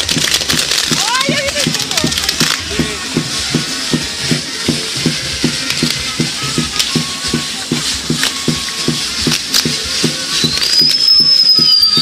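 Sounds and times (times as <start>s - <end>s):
firework crackles: 0.0s - 12.0s
hiss of spark fountains: 0.0s - 12.0s
whistling firework: 9.8s - 12.0s.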